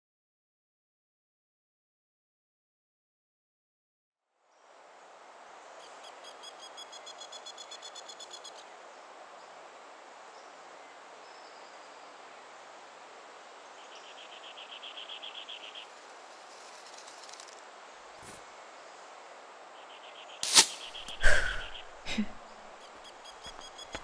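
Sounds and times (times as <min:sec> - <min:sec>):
snowy forest ambience: 0:04.2 - 0:24.0
bow shot snap and whoosh: 0:20.4 - 0:21.8.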